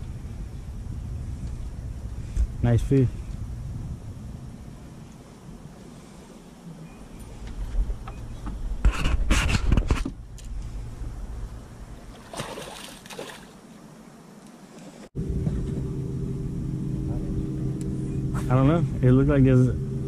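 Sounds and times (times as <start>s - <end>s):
fish splashing in water: 12.1s - 13.6s.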